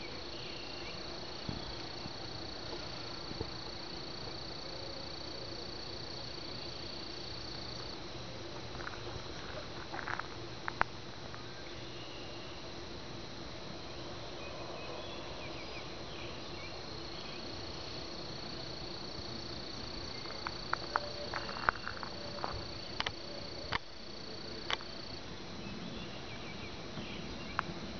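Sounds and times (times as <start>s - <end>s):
faint steady hum: 0.0s - 27.9s
insects calling high-pitched: 14.4s - 27.7s.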